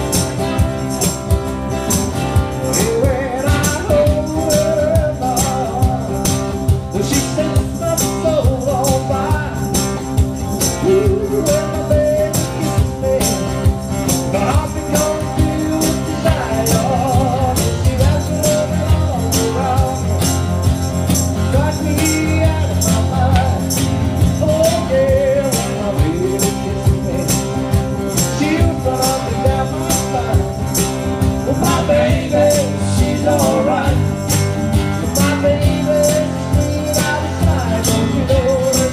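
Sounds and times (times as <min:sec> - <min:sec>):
electric bass guitar: 0:00.0 - 0:38.9
tambourine shaken and struck: 0:00.0 - 0:38.9
person singing: 0:31.4 - 0:34.3, 0:35.0 - 0:38.9.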